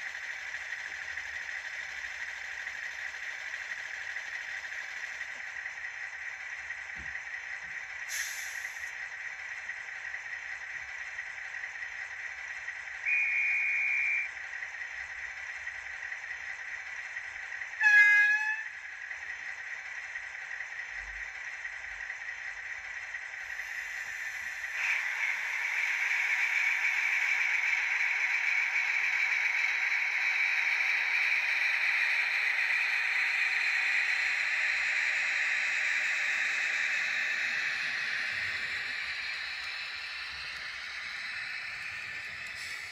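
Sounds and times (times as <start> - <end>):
model diesel engine sound: 0.0 - 42.9
air hiss: 8.1 - 8.9, 36.2 - 42.9
short high whistle: 13.1 - 14.3
loud horn blast: 17.8 - 18.6.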